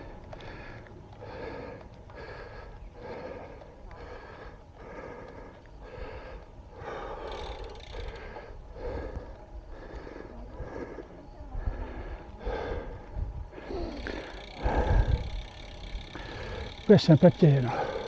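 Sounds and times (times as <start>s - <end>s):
person breathing hard: 0.0s - 18.0s
wind rumble on microphone: 10.5s - 13.7s, 14.6s - 15.6s.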